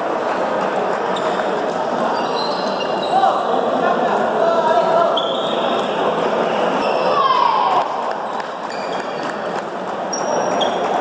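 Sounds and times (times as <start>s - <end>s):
hubbub of voices: 0.0s - 11.0s
table tennis balls clicking: 0.2s - 3.0s.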